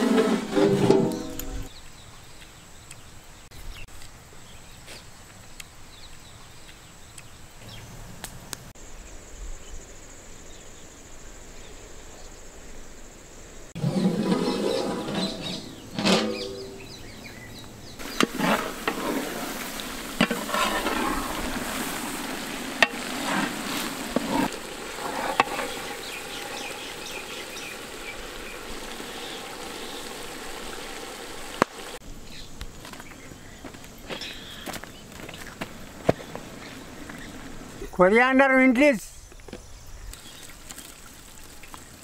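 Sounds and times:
metal clanks: 0.0 - 1.7, 13.8 - 17.0
pot boiling and bubbling: 13.8 - 16.8, 18.0 - 32.0.

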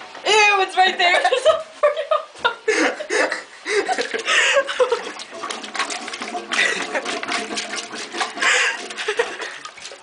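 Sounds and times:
people laughing: 1.1 - 5.2, 6.5 - 7.2
plunger splashing toilet water: 3.8 - 10.0.

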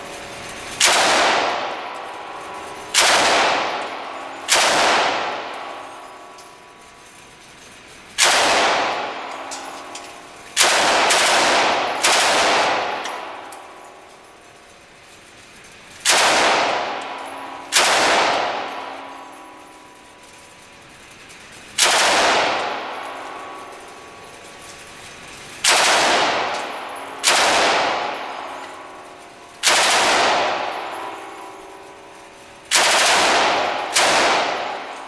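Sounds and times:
machine gun bursts echoing: 0.0 - 35.0.

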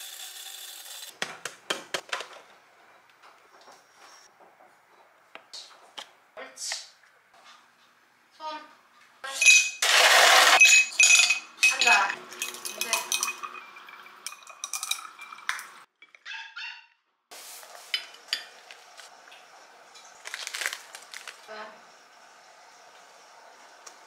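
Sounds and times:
ice cubes clinking in glasses: 9.4 - 15.8.

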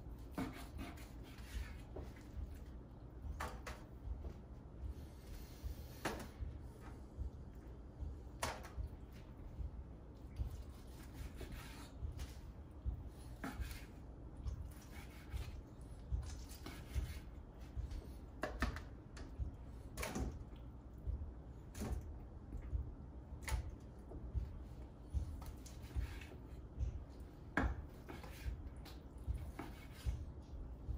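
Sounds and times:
knife cutting meat: 0.1 - 2.7, 10.4 - 12.4, 13.3 - 14.0, 14.6 - 17.8, 27.6 - 30.4.

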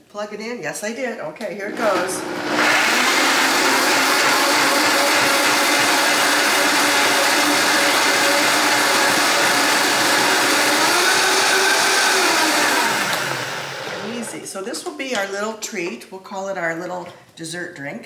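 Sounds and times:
blender motor whirring: 1.7 - 14.4.

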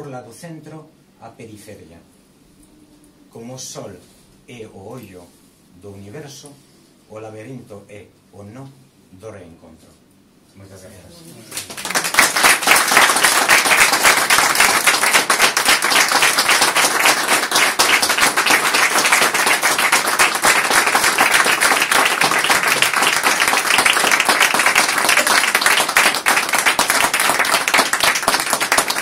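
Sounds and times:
audience applauding: 11.4 - 29.0.

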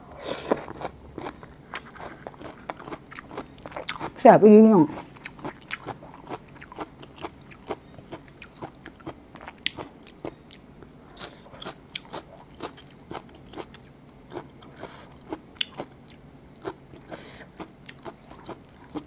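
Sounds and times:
person eating crab: 0.0 - 4.2, 4.9 - 19.0.

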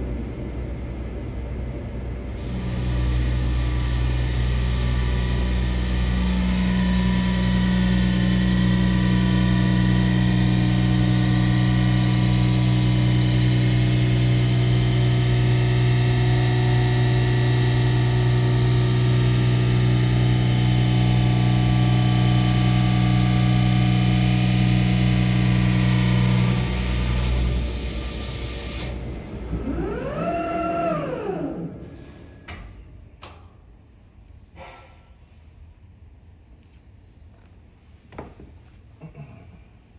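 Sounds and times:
higher hum: 0.0 - 7.0
lathe machine hum: 0.0 - 31.8.

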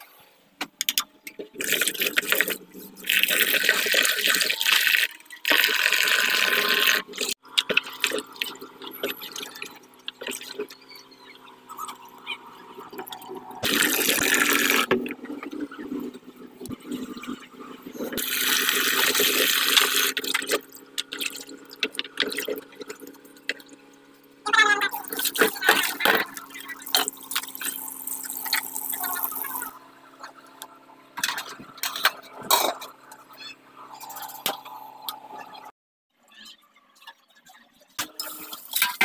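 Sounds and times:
tap water running into pot: 1.6 - 7.0.

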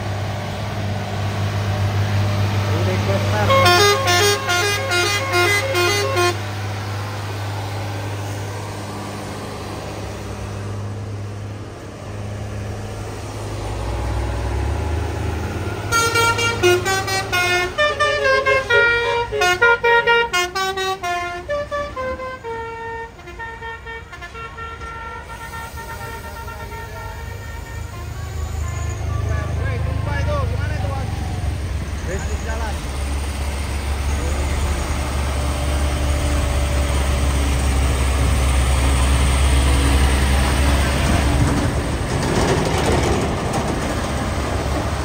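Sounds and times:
heavy truck engine running: 0.0 - 45.0
musical vehicle horn: 3.3 - 6.5, 15.9 - 29.7.

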